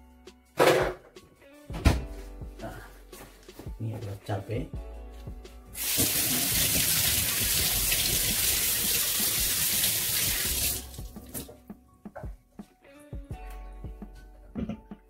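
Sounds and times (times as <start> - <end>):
tap running into sink: 5.8 - 11.5.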